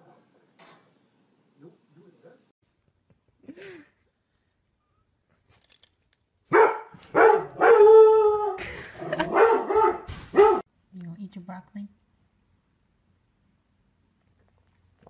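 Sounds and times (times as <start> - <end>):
puppy barking and howling: 6.6 - 10.6.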